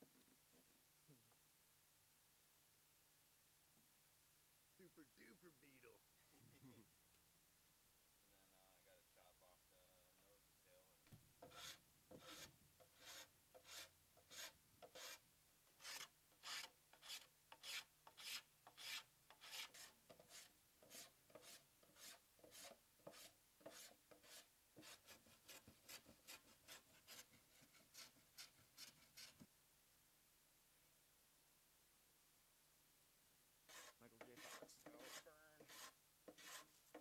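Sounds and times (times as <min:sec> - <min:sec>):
hand plane shaving wood: 0:11.4 - 0:15.2, 0:15.8 - 0:29.4, 0:33.7 - 0:37.0.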